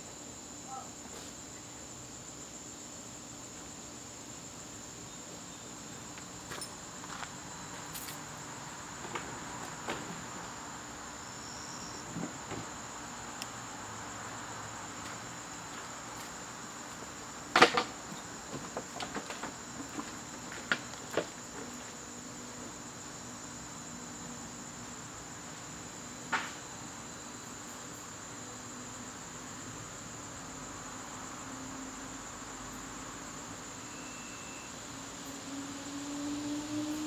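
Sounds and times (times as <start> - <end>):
crickets chirping: 0.0 - 37.0.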